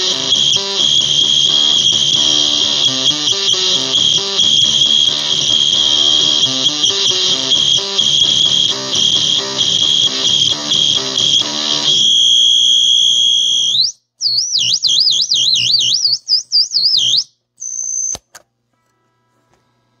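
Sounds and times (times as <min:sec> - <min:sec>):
shrill bird-like pedal squeal: 0:00.0 - 0:12.0
steady tone: 0:00.0 - 0:12.3
guitar notes through amp: 0:00.0 - 0:12.8
click: 0:18.1 - 0:18.5.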